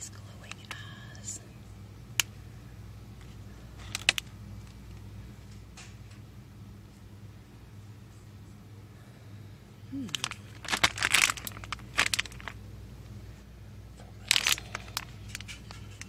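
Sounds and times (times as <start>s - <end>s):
steady low hum: 0.0s - 16.0s
plastic packaging crinkling: 3.8s - 4.8s, 10.0s - 12.6s, 14.1s - 16.0s.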